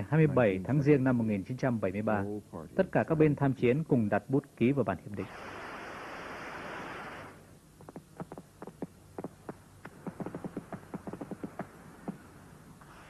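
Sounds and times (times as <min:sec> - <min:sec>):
firework hissing rush: 0:05.2 - 0:07.4.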